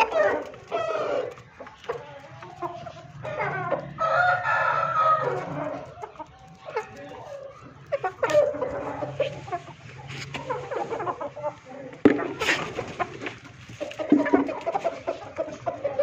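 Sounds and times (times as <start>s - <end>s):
roosters clucking: 0.0s - 16.0s
rooster crowing: 3.2s - 6.0s.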